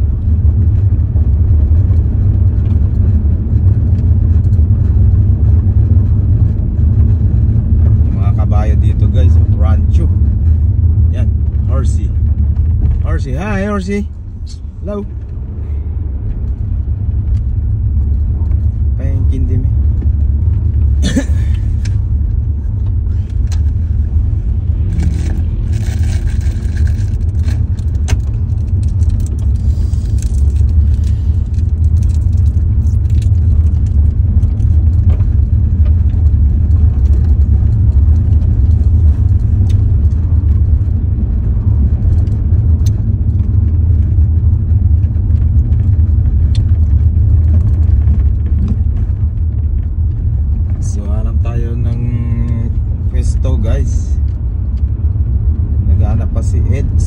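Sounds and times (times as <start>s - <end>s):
car driving on gravel: 0.0s - 57.0s
small clicks and rattles: 24.8s - 41.0s.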